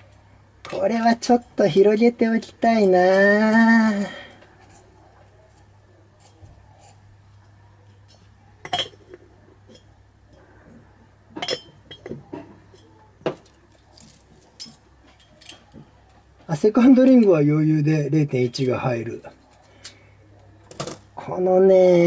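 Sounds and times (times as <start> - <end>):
light metallic clinks: 13.9 - 15.8.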